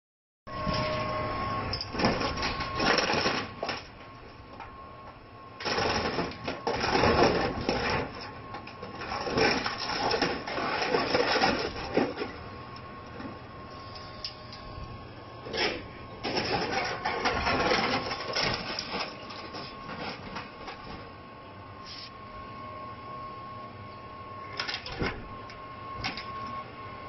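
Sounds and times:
steady high tone: 0:00.5 - 0:02.9
metal crunching and clattering: 0:15.5 - 0:21.1.

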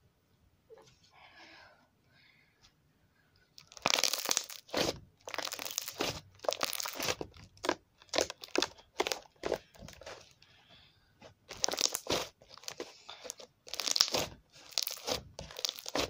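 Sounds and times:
crunchy slime squishing: 0:03.6 - 0:10.4, 0:11.4 - 0:16.0.

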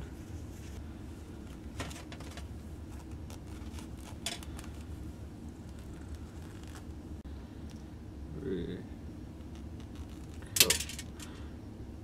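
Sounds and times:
steady low hum: 0:00.0 - 0:12.0
rustles and clicks of tools: 0:01.4 - 0:04.9, 0:09.4 - 0:11.4.

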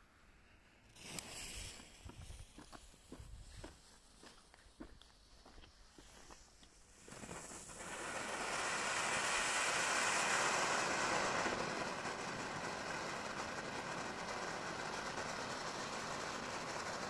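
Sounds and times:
fountain firework hissing: 0:05.9 - 0:17.0.

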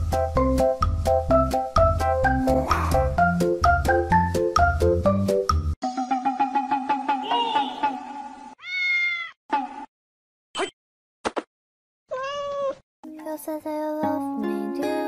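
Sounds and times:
cat meowing: 0:08.6 - 0:09.4, 0:12.1 - 0:12.8.

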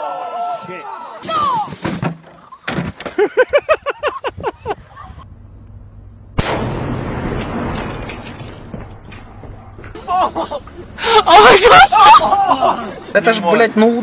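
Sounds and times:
person crying out: 0:10.0 - 0:13.0.

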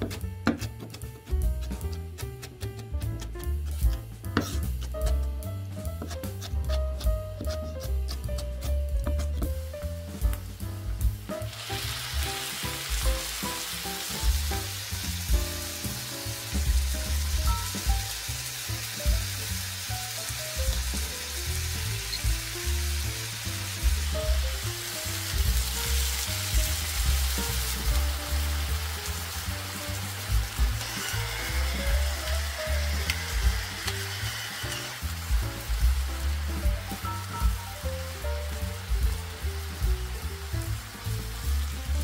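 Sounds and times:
background music: 0:00.0 - 0:42.0
vegetables sizzling in frying pan: 0:09.7 - 0:42.0.

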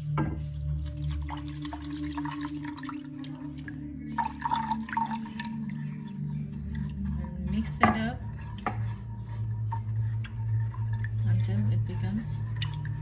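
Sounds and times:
steady low hum: 0:00.0 - 0:13.0
water pouring into saucepan: 0:00.4 - 0:08.6.

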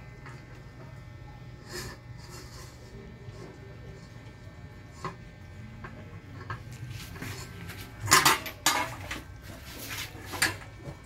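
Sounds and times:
metal dog bowl and chain clanking: 0:08.0 - 0:09.2.

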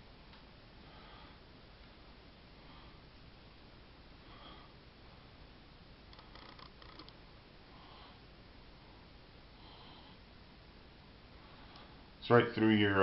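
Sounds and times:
faint breaths: 0:00.8 - 0:03.4, 0:04.1 - 0:05.5, 0:07.6 - 0:10.4, 0:11.2 - 0:12.2.

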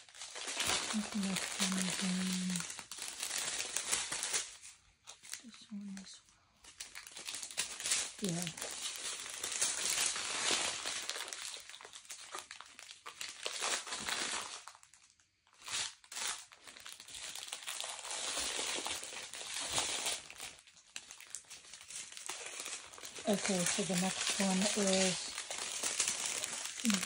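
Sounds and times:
plastic bags crinkling: 0:00.0 - 0:27.0.

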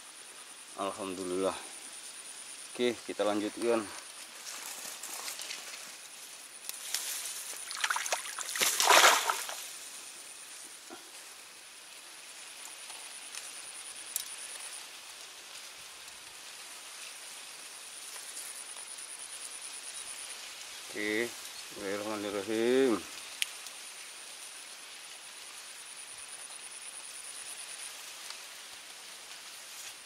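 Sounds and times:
water sloshing and splashing: 0:07.6 - 0:09.8.

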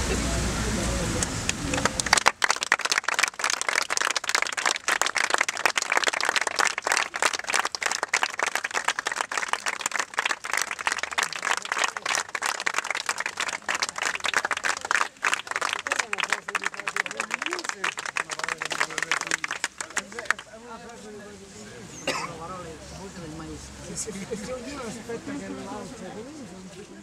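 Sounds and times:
crowd applauding: 0:01.2 - 0:20.6.

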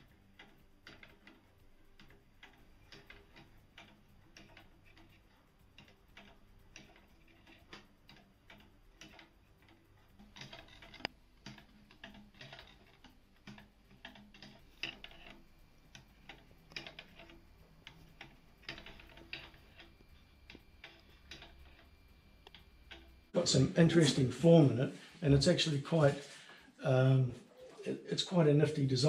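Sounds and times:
wooden escapement ticking and knocking: 0:00.0 - 0:24.2.

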